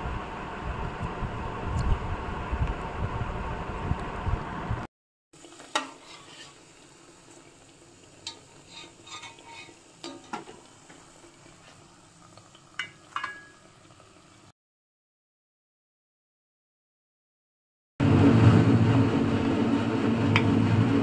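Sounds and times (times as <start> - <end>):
food sizzling in oil: 5.4 - 14.5
metal spoon clinking against pan: 12.8 - 13.6
loud rushing noise: 18.0 - 21.0.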